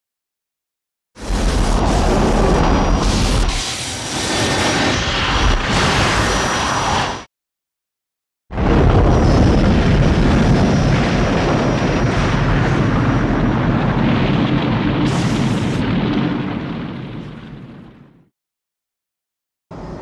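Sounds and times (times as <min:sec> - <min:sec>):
loud rumbling blast: 0:01.2 - 0:07.2, 0:08.5 - 0:18.3.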